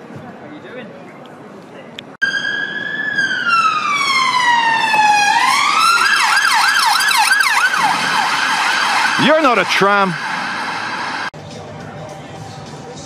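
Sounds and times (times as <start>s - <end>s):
police siren wailing and yelping: 2.2s - 11.3s.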